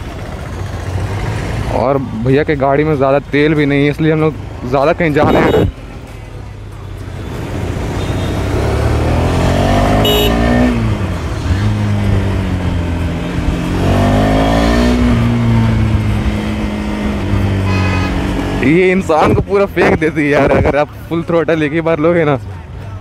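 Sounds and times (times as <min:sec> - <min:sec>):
motorcycle engine accelerating: 0:07.5 - 0:18.9.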